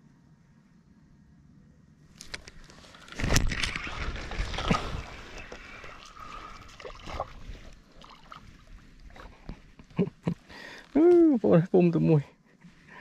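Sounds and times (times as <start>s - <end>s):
water splashing: 2.3s - 10.3s
water trickling: 2.6s - 10.4s.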